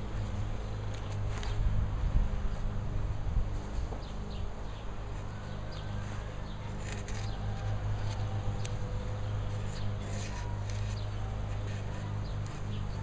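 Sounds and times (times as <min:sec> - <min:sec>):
chisel scraping wood: 0:09.5 - 0:12.7.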